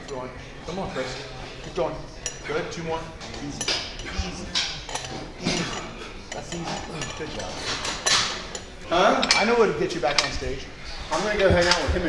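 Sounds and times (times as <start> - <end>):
faint background voices: 0.0 - 12.0
weights clinking together: 3.2 - 9.5.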